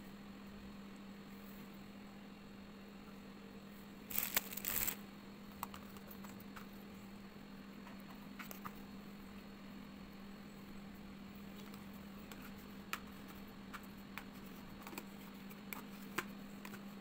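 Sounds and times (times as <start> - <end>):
steady low hum: 0.0 - 17.0
rustling and crinkling: 4.1 - 5.0.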